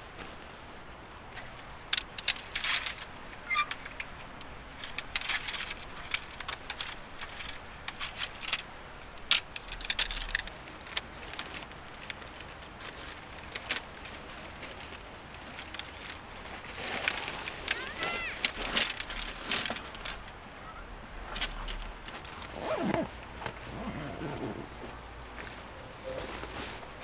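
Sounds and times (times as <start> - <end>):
gear clinking and rattling: 1.6 - 20.4, 21.2 - 26.2
nylon bags rustling: 11.1 - 20.3, 21.2 - 27.0.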